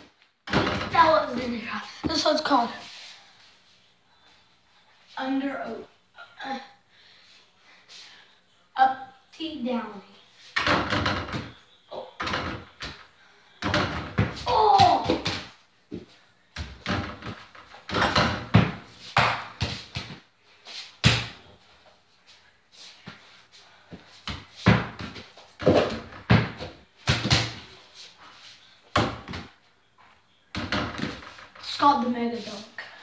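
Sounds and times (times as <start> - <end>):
basketball knocking on door and hoop: 0.5 - 1.1.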